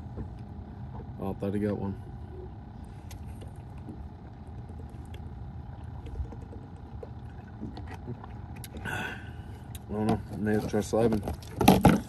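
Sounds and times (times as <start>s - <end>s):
boat motor rumbling: 0.0s - 12.0s.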